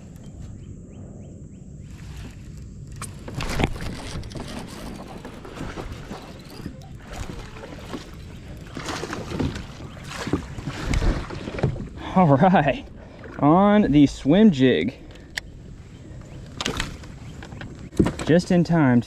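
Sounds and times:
wind rumble on microphone: 0.0 - 12.1
water splashes: 3.1 - 14.8
kayak knocks: 3.2 - 12.0, 16.6 - 18.6.

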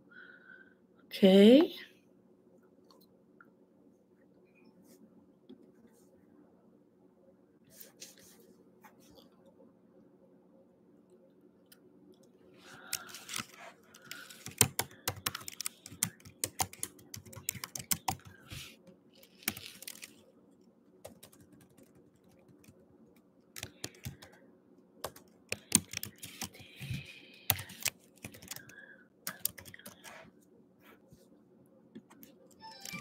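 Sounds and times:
typing on computer keyboard: 12.9 - 18.5, 19.2 - 20.1, 21.0 - 22.8, 23.6 - 24.4, 25.0 - 30.1, 32.0 - 33.0.

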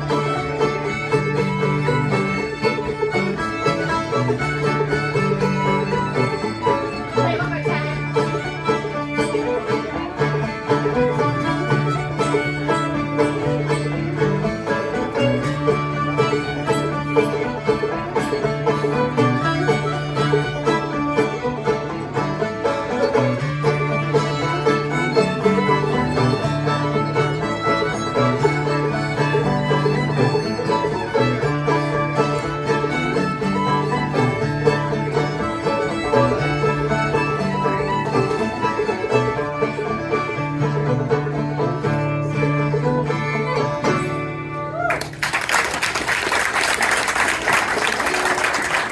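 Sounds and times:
string band playing fiddle tune: 0.0 - 48.9
audience applause: 44.8 - 48.9.

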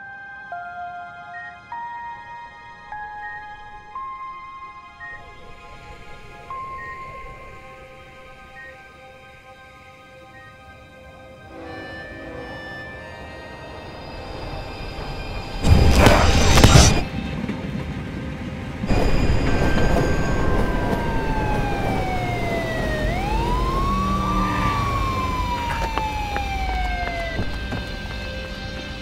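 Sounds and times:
siren wailing: 10.3 - 17.1, 18.9 - 28.4
loud noisy burst: 14.2 - 17.1, 18.8 - 27.6.

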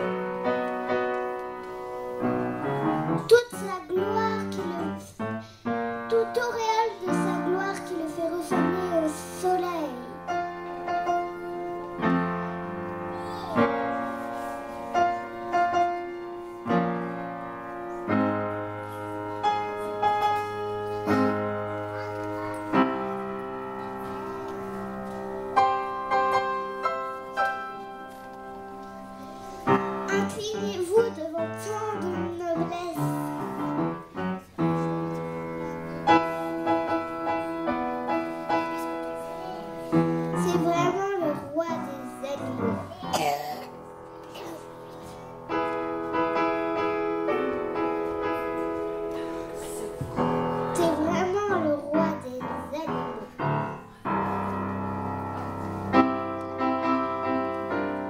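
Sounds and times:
slow piano music: 0.0 - 58.0
child's voice: 3.2 - 5.2, 6.1 - 10.3, 13.1 - 13.7, 19.4 - 22.8, 30.1 - 33.6, 38.6 - 45.4, 49.1 - 53.5.

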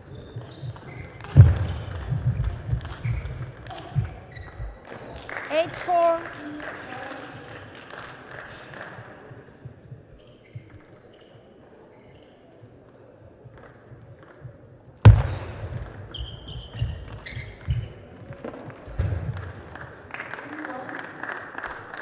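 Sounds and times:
shoes squeaking on floor: 0.0 - 4.8, 10.2 - 12.6, 16.1 - 18.1
loud thump: 1.4 - 2.8, 15.1 - 16.0.

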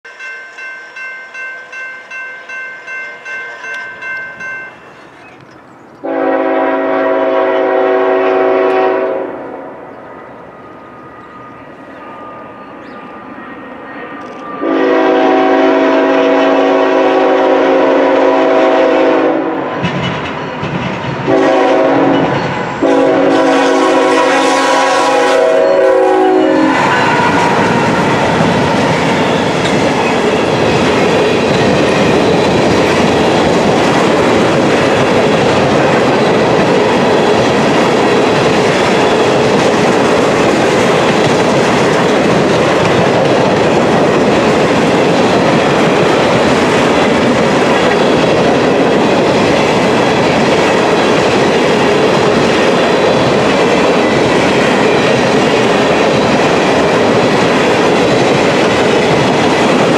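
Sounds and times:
crossing bell dinging: 0.0 - 5.4
locomotive engine and wheels rumbling: 0.1 - 59.9
locomotive air horn: 6.0 - 9.6, 14.6 - 19.7, 21.3 - 28.2.

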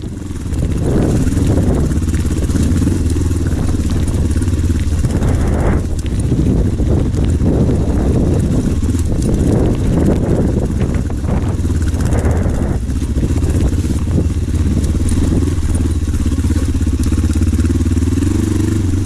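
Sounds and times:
motorcycle engine pulling: 0.0 - 19.0.

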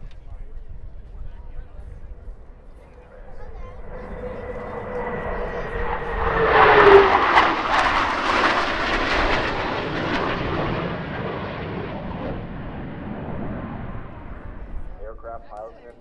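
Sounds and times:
jets flying past: 3.4 - 15.2.

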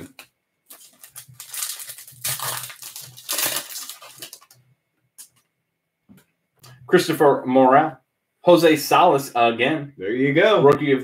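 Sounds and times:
plastic wrapper crinkling: 0.1 - 4.6.

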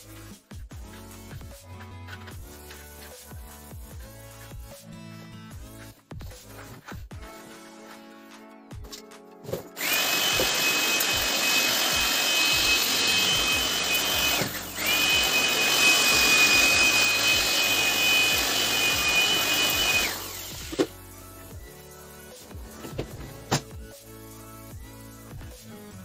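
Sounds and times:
electric air blower whine: 9.8 - 20.9.

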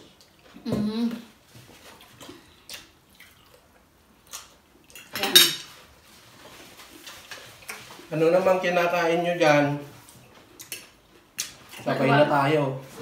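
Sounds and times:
cutlery clicking on plates: 4.4 - 5.7.

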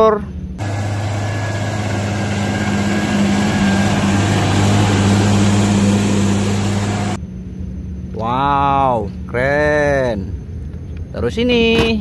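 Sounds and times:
tractor diesel engine under load: 0.6 - 7.2.

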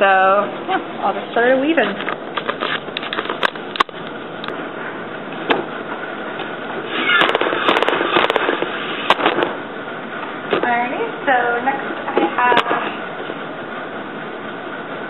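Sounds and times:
loom squeak: 6.9 - 7.4.

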